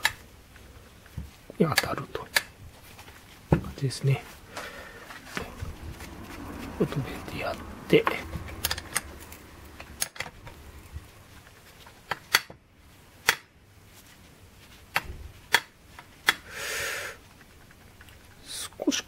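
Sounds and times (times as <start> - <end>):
metal clicks and taps: 8.0 - 9.1.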